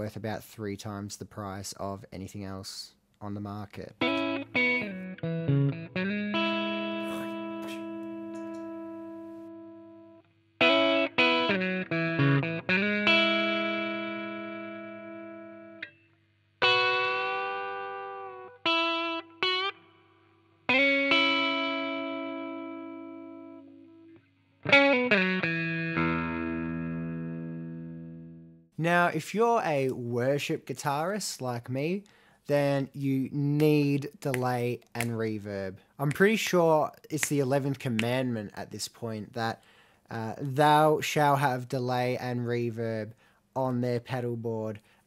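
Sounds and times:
overdriven electric guitar: 4.0s - 16.0s, 16.6s - 28.6s.

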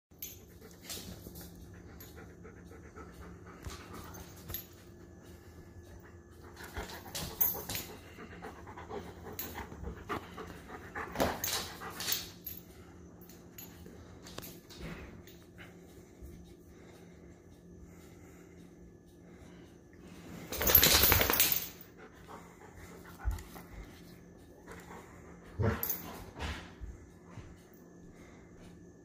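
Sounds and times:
faint low hum: 0.2s - 29.0s
dog panting: 0.4s - 13.6s, 21.8s - 27.6s.

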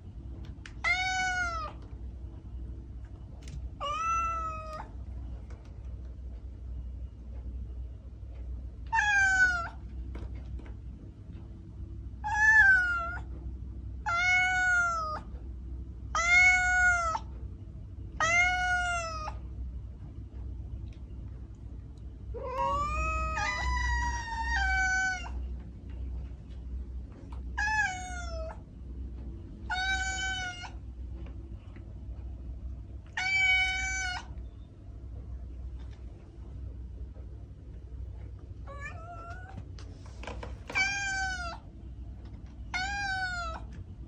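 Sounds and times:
low steady hum: 0.0s - 44.0s
cat meowing: 0.8s - 1.8s, 3.8s - 4.9s, 8.9s - 9.8s, 12.2s - 13.3s, 14.0s - 15.3s, 16.1s - 17.3s, 18.2s - 19.4s, 22.4s - 25.5s, 27.5s - 28.6s, 29.7s - 30.8s, 33.1s - 34.4s, 38.7s - 39.6s, 40.7s - 41.6s, 42.7s - 43.7s.

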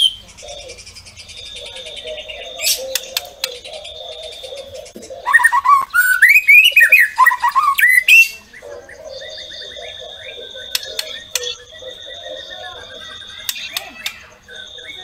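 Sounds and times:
bird singing whistled notes: 0.0s - 15.0s
sharp clicks: 2.9s - 3.6s, 10.6s - 11.7s, 13.4s - 14.3s.

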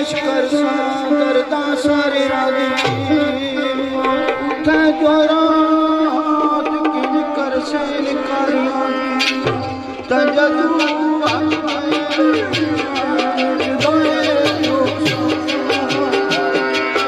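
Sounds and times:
hand drum strokes: 9.2s - 17.0s.

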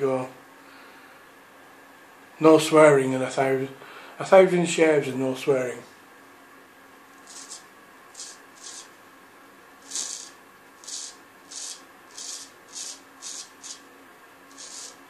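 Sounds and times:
razor scraping beard stubble: 7.2s - 7.6s, 8.2s - 8.9s, 9.8s - 13.8s, 14.5s - 15.0s.

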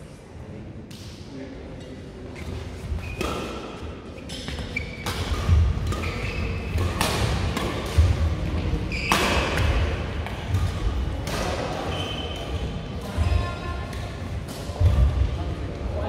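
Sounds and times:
sneakers squeaking: 2.3s - 11.0s, 11.8s - 13.7s
racket striking shuttlecock: 4.5s - 8.2s.

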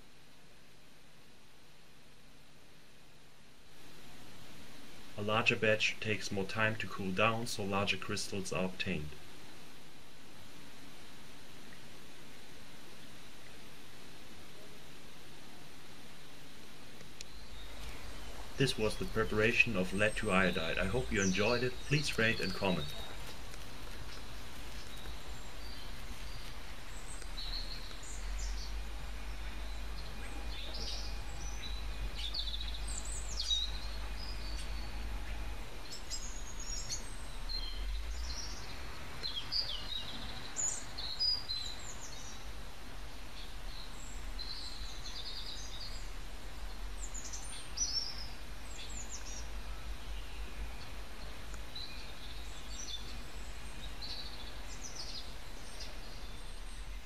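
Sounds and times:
birds chirping: 5.0s - 9.6s, 17.0s - 57.0s
low background rumble: 17.2s - 57.0s.

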